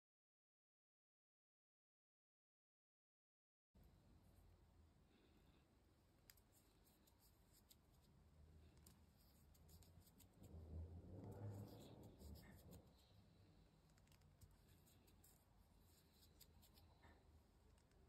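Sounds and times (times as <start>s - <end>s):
soft rustle: 6.0s - 18.0s.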